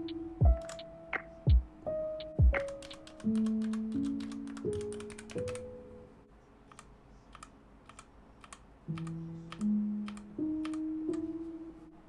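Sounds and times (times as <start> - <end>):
soft background music: 0.0 - 6.3, 8.8 - 12.0
mechanical keyboard key clicks: 2.6 - 5.6.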